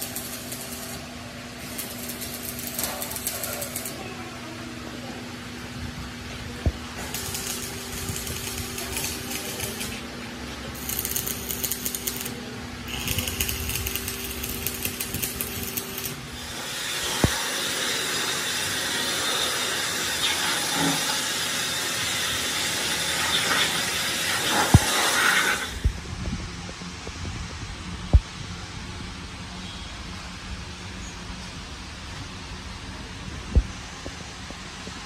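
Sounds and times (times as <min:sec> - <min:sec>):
steady loud hiss: 0:00.0 - 0:35.0
power tool buzzing rattle: 0:01.6 - 0:04.0, 0:07.0 - 0:10.0, 0:10.8 - 0:26.0.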